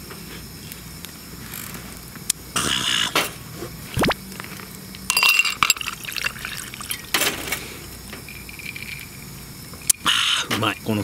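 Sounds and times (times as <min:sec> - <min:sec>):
ice cubes clinking in glass: 0:05.1 - 0:07.2
liquid pouring over ice: 0:05.1 - 0:07.2.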